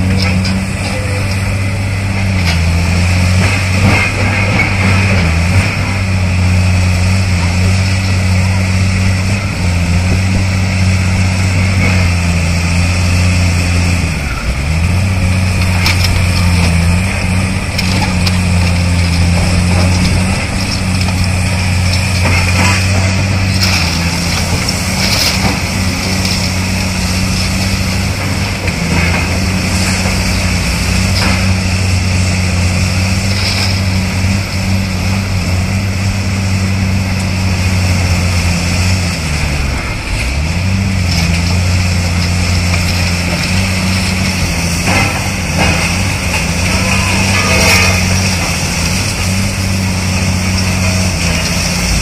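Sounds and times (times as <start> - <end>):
excavator diesel engines running: 0.0 - 52.0
concrete rubble cracking and crunching: 11.6 - 35.5, 37.2 - 52.0.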